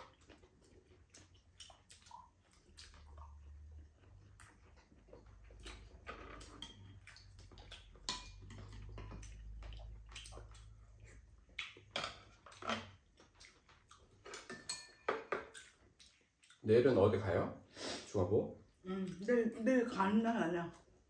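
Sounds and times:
utensils clinking on bowls: 0:08.0 - 0:09.4, 0:14.4 - 0:15.5.

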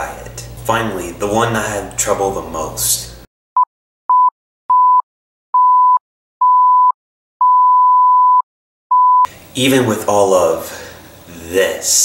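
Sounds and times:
high electronic bleep: 0:05.6 - 0:09.3.

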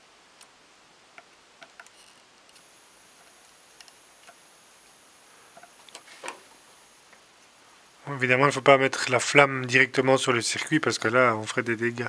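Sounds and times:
room hiss: 0:00.0 - 0:12.0
small ticks and clicks: 0:00.3 - 0:04.5.

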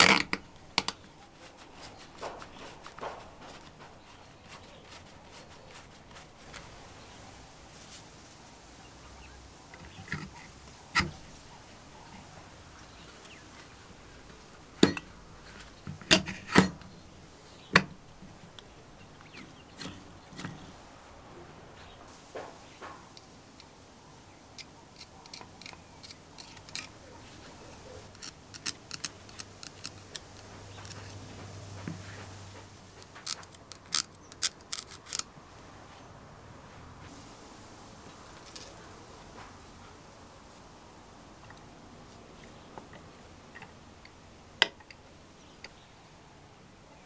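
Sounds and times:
drill parts knocking and clicking: 0:14.8 - 0:15.1.

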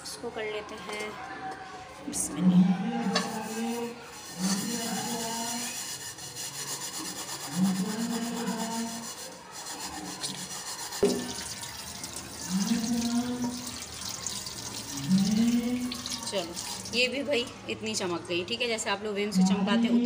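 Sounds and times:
steel wool scrubbing a pot: 0:03.0 - 0:17.2.

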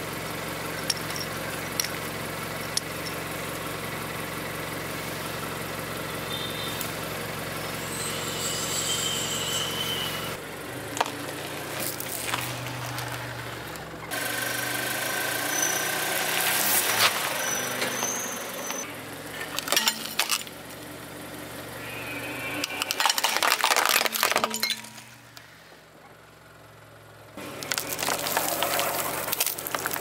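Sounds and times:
car engine idling: 0:00.0 - 0:30.0
steady high squeal: 0:06.1 - 0:10.4, 0:15.2 - 0:18.9, 0:21.6 - 0:23.5
objects cracking under tyre: 0:10.8 - 0:14.1, 0:16.1 - 0:18.8, 0:19.4 - 0:20.6, 0:22.6 - 0:25.5, 0:27.4 - 0:30.0.

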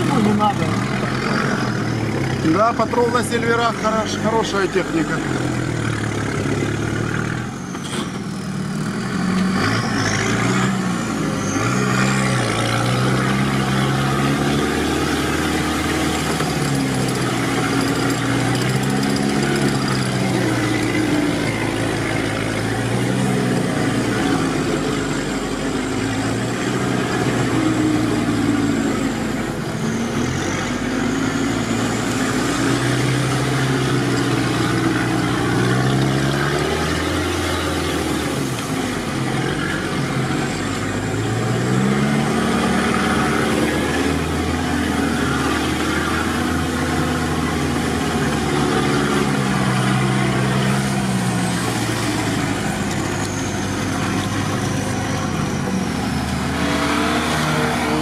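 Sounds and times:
off-road vehicle engine revving: 0:00.0 - 0:58.0.

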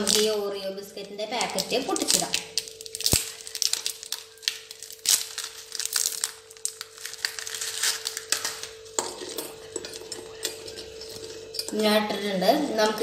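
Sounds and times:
plastic wrapper crinkling and tearing: 0:00.0 - 0:00.4, 0:01.0 - 0:09.0.

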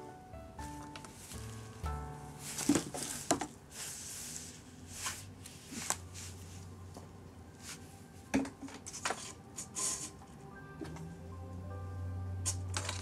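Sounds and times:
cat rustling in cardboard: 0:01.1 - 0:06.7.

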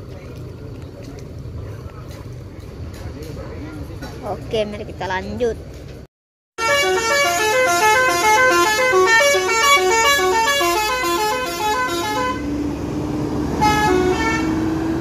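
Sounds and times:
musical bus horn tune: 0:06.6 - 0:12.5, 0:13.5 - 0:14.8
bus engine running: 0:06.7 - 0:15.0
short horn toot: 0:13.6 - 0:14.6.

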